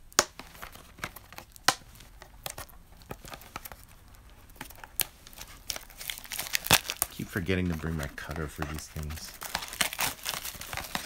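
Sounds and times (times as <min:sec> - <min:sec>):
plastic wrap crinkling and tearing: 0:00.0 - 0:11.0.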